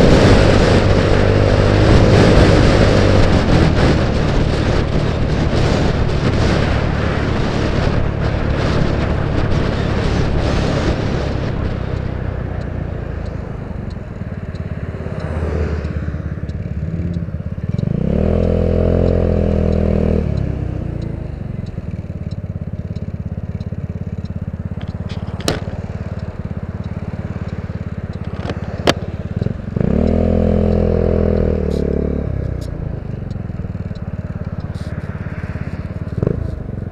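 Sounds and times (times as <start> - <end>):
wind noise: 0.0 - 15.3
scooter engine: 0.0 - 36.9
sharp clicks: 0.2 - 36.9.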